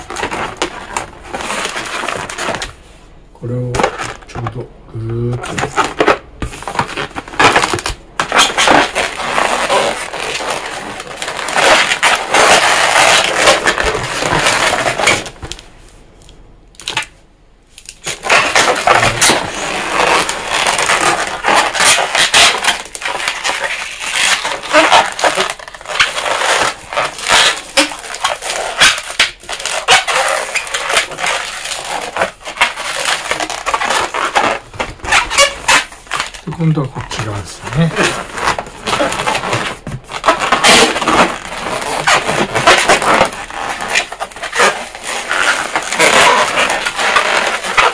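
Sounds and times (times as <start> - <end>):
balloons squeaking and rubbing: 0.0 - 15.8, 18.0 - 47.9.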